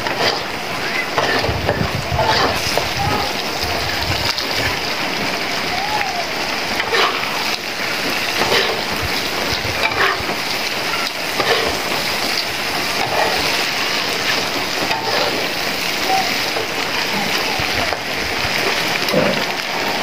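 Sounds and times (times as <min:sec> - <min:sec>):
spatula scraping in a wok: 0:00.0 - 0:03.4, 0:06.8 - 0:17.4
heavy rain hissing: 0:00.0 - 0:20.0.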